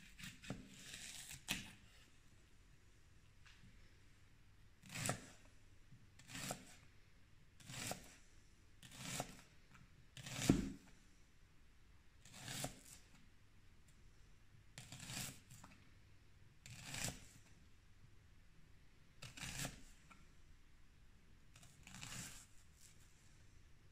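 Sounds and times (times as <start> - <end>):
knife slicing onion: 0.0 - 2.0, 4.8 - 5.4, 6.2 - 6.8, 7.6 - 8.2, 8.8 - 9.4, 10.2 - 10.8, 12.2 - 13.1, 14.8 - 15.6, 16.6 - 17.3, 19.2 - 19.9, 21.6 - 23.0.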